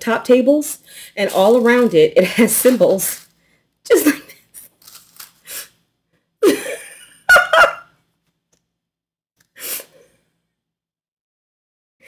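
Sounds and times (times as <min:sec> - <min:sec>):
woman laughing: 0:06.4 - 0:07.9.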